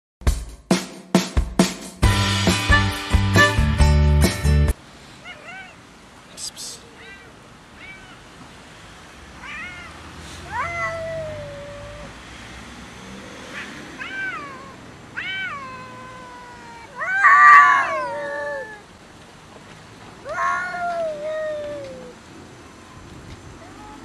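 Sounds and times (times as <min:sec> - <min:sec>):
cat yowling: 0:05.2 - 0:05.9, 0:06.8 - 0:08.3, 0:09.4 - 0:12.2, 0:13.5 - 0:18.9, 0:20.2 - 0:22.2, 0:23.6 - 0:24.0.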